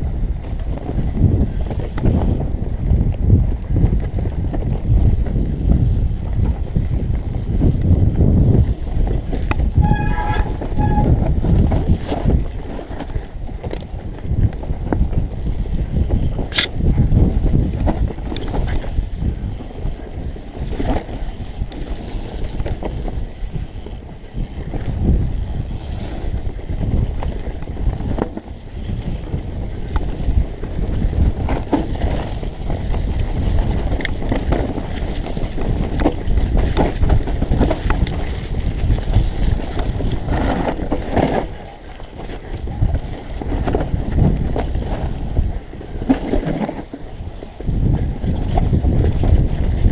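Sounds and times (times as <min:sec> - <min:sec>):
bike rumble and rattle: 0:00.0 - 0:49.9
wind buffeting microphone: 0:00.0 - 0:49.9
brief pitched tone: 0:09.8 - 0:11.2.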